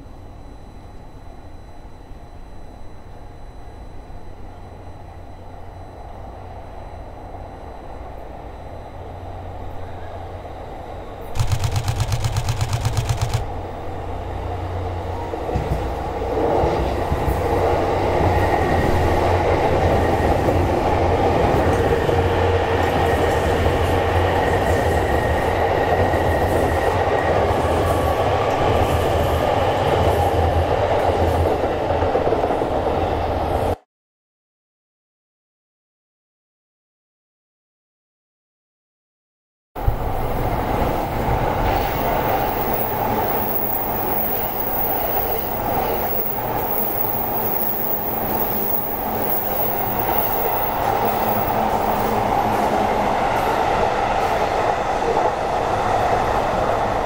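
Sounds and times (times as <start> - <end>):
train passing: 6.2 - 33.8, 39.8 - 57.0
loud rapidly pulsing sound: 11.4 - 13.5.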